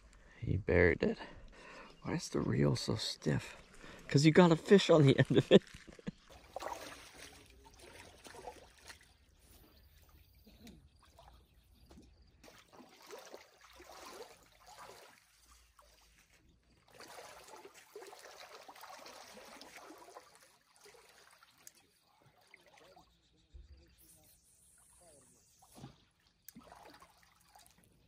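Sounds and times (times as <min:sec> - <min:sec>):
lake water trickling and lapping: 0:01.6 - 0:28.0
water drips and splashes: 0:05.2 - 0:23.3, 0:24.4 - 0:28.0.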